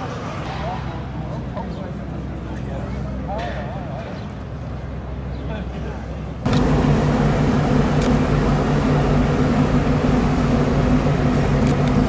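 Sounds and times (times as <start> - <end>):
machinery humming: 4.4 - 12.0.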